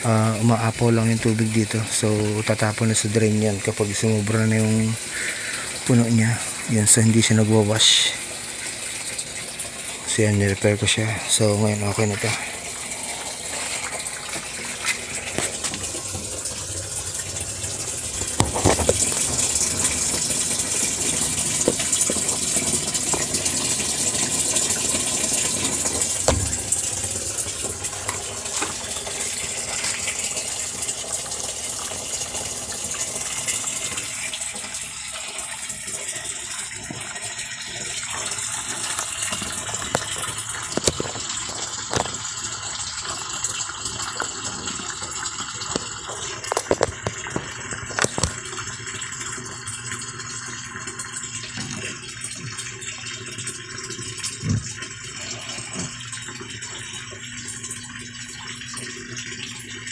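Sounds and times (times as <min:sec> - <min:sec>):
water gushing into washing machine: 0:00.0 - 0:59.9
short knocks: 0:26.2 - 0:27.1.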